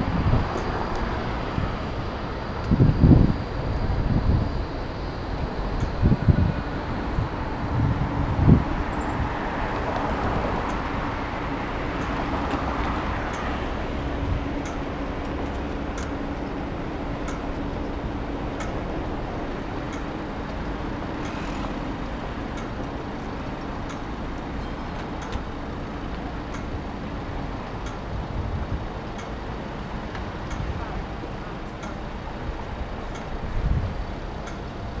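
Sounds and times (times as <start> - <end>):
city road traffic: 0.0 - 35.0
faint sharp ticks: 31.7 - 32.0, 33.1 - 33.4, 34.4 - 34.8.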